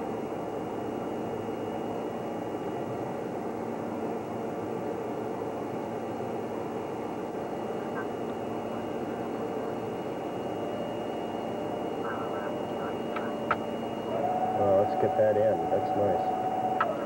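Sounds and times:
machinery hum and hiss: 0.0s - 17.0s
high-pitched whine: 7.3s - 17.0s.

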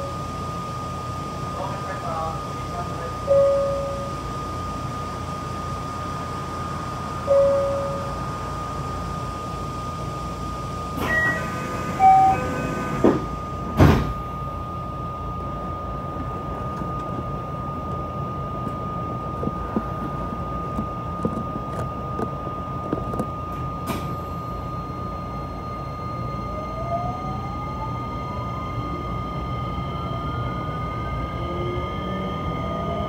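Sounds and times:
train electrical hum and whine: 0.0s - 33.0s
electronic chime tones: 3.3s - 4.2s, 7.3s - 8.2s, 12.0s - 12.5s
train doors shutting with thud: 11.0s - 14.3s, 23.0s - 24.2s.

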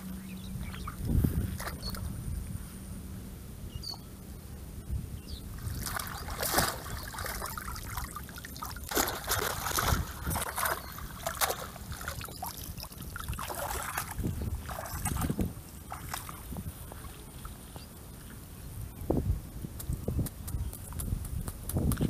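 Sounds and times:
water splashing and trickling: 5.5s - 18.5s.

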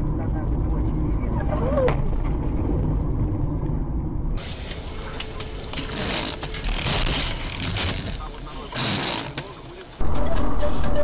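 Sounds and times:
car road and engine rumble: 0.0s - 11.0s
hiss of rain and wet tyres: 4.4s - 5.4s.

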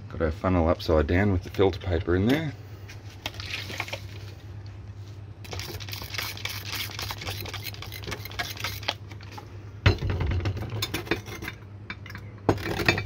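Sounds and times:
spray bottle squirting water: 5.4s - 9.0s.

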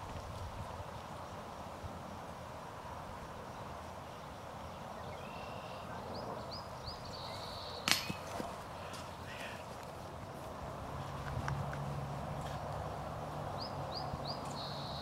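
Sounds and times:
outdoor background noise: 0.0s - 15.0s
sharp knocks: 7.9s - 8.3s.

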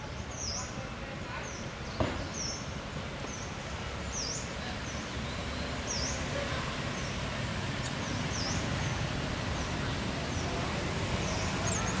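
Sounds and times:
high thin bird chirp: 11.3s - 12.0s.

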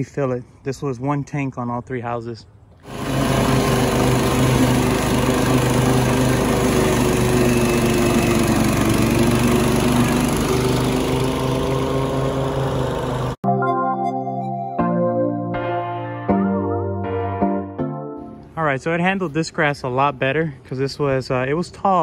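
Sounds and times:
lawn mower engine cutting grass: 2.7s - 13.4s.

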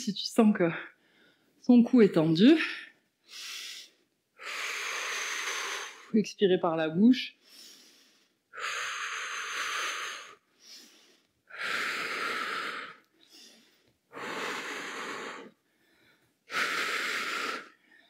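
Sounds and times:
faint inhalations: 3.2s - 6.1s, 7.4s - 18.0s.

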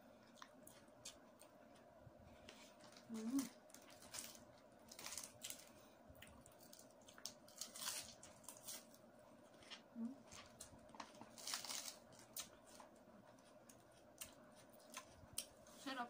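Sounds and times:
faint steady hum: 0.0s - 16.0s
crisp crunches: 2.7s - 9.0s, 10.3s - 12.6s.

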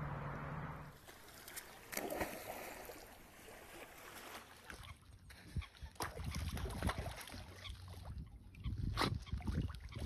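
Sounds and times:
water sloshing: 1.0s - 10.0s
dog splashing into water: 1.1s - 4.7s.

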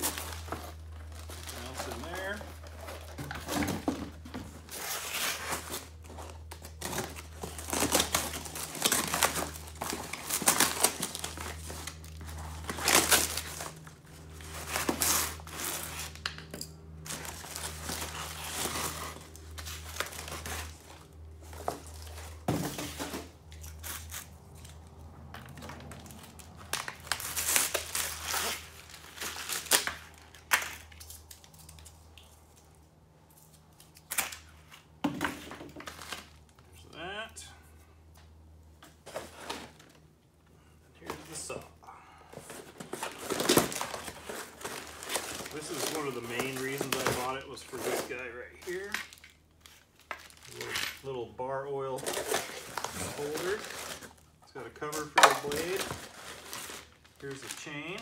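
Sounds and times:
plastic wrap crinkling: 0.0s - 3.6s, 4.5s - 16.3s, 17.0s - 22.5s, 42.6s - 51.2s, 51.9s - 58.0s.

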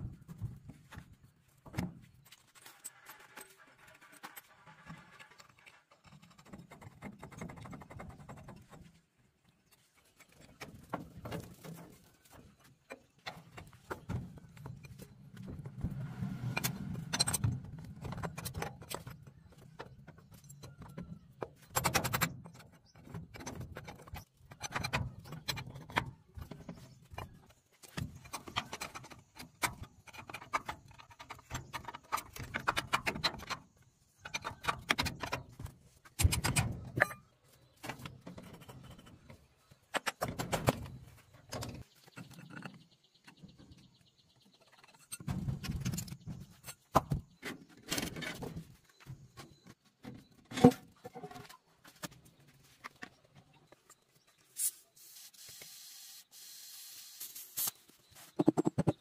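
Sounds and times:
metal tools clinking and scraping: 36.9s - 37.3s.

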